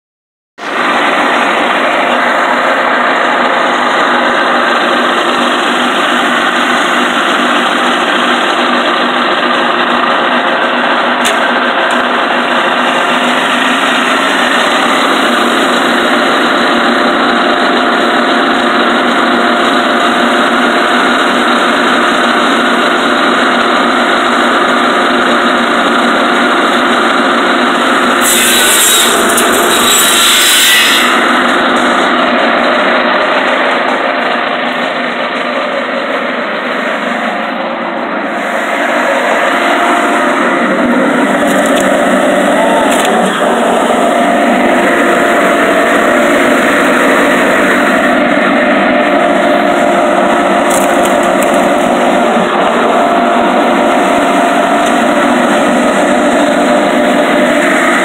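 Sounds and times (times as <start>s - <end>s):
firewood processor running: 0.6s - 58.0s.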